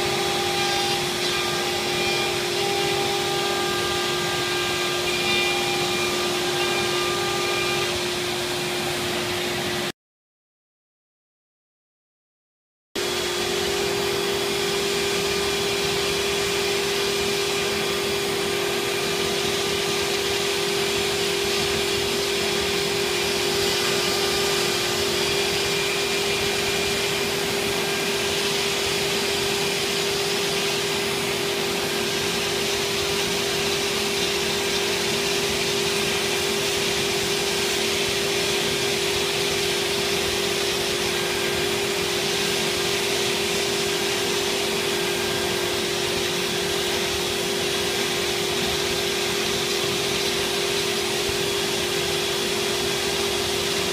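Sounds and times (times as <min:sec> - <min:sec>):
router spindle whine: 0:00.0 - 0:09.9, 0:13.0 - 0:53.9.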